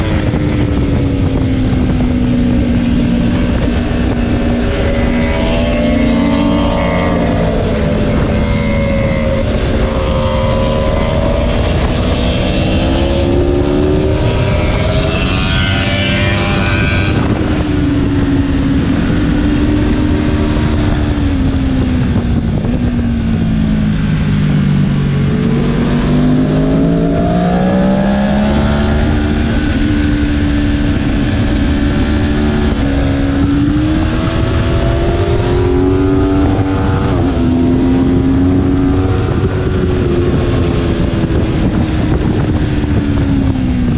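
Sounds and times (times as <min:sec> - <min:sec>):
motorcycle engine accelerating: 0:00.0 - 0:43.9.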